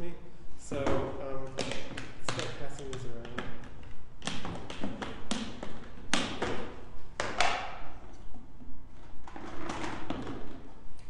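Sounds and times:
objects knocking in plastic bucket: 0.8s - 7.7s, 9.2s - 10.7s.

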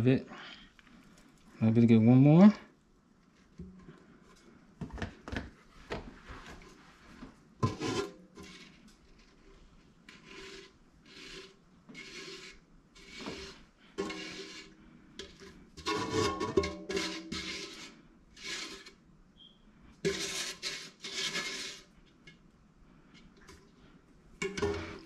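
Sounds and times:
spatula scraping a metal pot: 7.6s - 19.0s, 20.0s - 22.4s, 24.4s - 25.0s.

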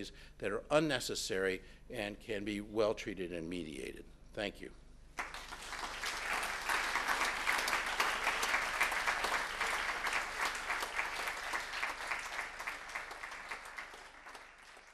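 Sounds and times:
audience applauding: 5.2s - 14.9s.

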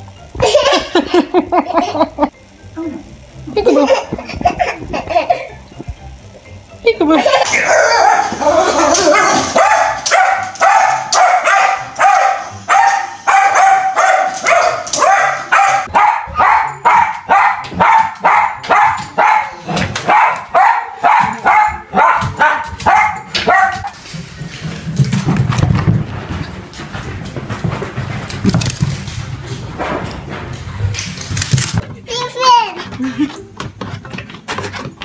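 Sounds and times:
dog barking: 7.6s - 8.3s, 9.2s - 23.9s.

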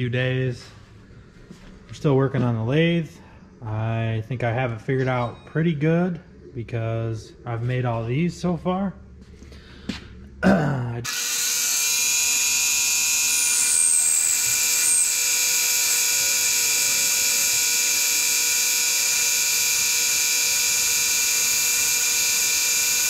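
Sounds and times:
metal lathe whining: 11.1s - 23.0s.

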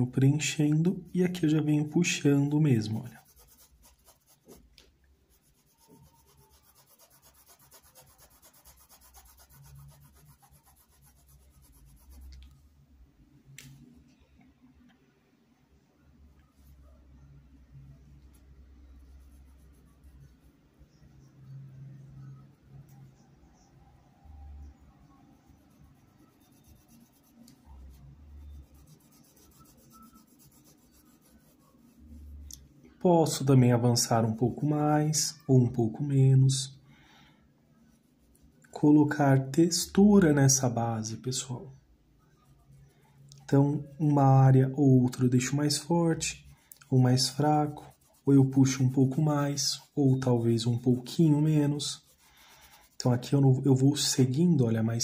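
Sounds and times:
paintbrush scrubbing on cloth: 0.0s - 12.6s, 18.3s - 21.0s, 25.4s - 32.6s, 37.8s - 55.0s.

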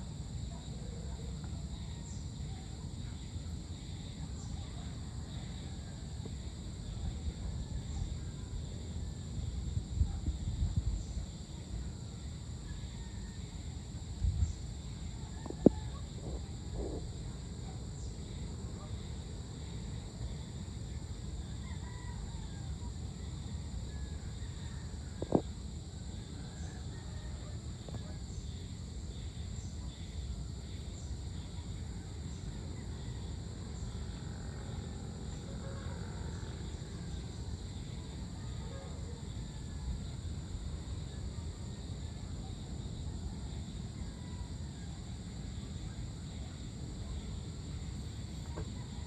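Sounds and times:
high-pitched insect chorus: 0.0s - 49.0s.

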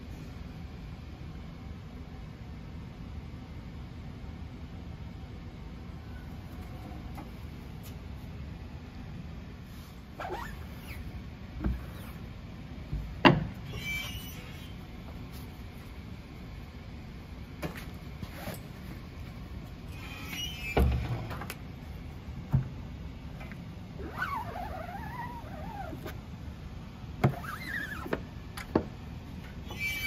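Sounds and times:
press frame knocks and clunks: 13.0s - 13.6s
gliding squeaks: 13.7s - 14.8s, 19.9s - 20.9s, 24.0s - 26.1s, 27.3s - 28.2s, 29.6s - 30.0s.

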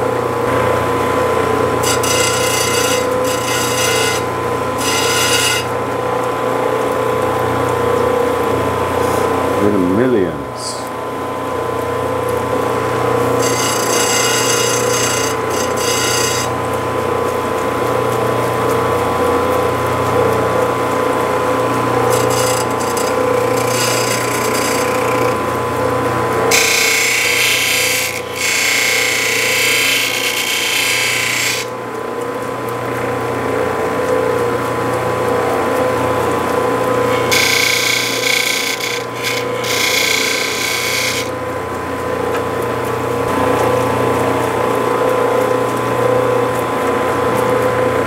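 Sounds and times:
grinding machine motor hum: 0.0s - 48.0s
stone grinding on wheel: 1.8s - 5.7s, 13.3s - 16.6s, 22.0s - 25.5s, 26.5s - 31.7s, 37.1s - 41.3s.

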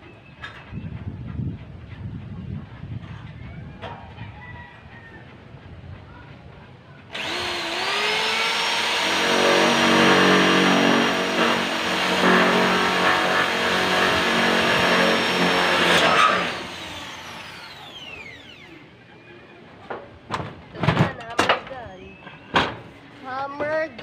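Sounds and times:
electric drill boring into metal: 7.1s - 18.8s.

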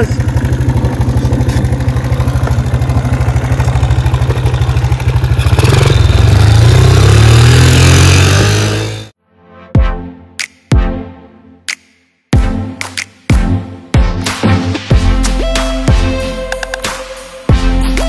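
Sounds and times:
small motorbike engine idling and revving: 0.0s - 9.2s.

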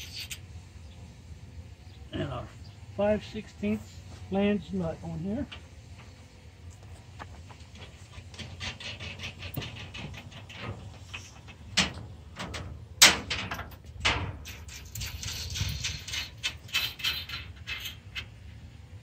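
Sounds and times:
metal bolts clicking and clinking: 8.4s - 18.4s.

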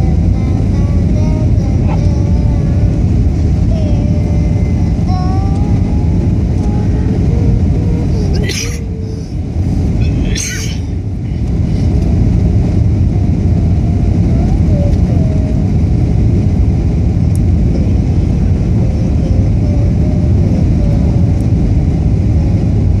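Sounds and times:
jet engines roaring in cabin: 0.0s - 23.0s
rushing air: 2.4s - 14.4s.

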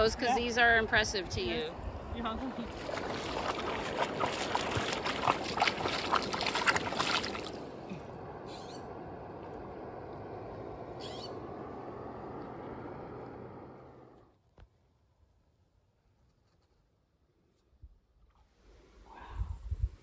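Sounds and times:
dog splashing through water: 2.5s - 7.8s.

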